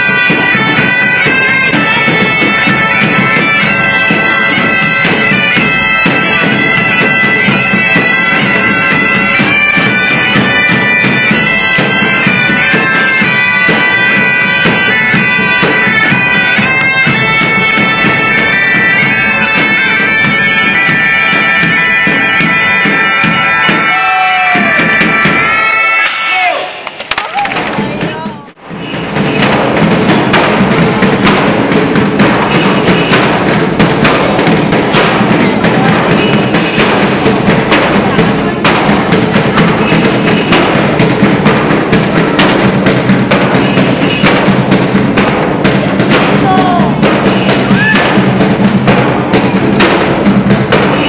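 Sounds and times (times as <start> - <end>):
bagpipes playing a tune: 0.0 - 26.2
percussion: 0.0 - 51.0.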